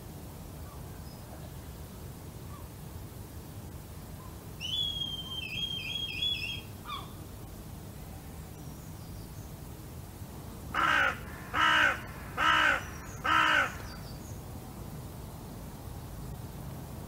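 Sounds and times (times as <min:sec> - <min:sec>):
crow cawing: 0:10.7 - 0:13.9.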